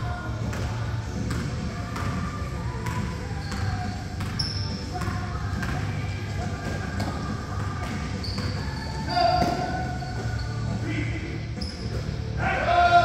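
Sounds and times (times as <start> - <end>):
basketball bouncing on gym floor: 0.4 - 10.4
shoes squeaking on court: 1.2 - 12.3.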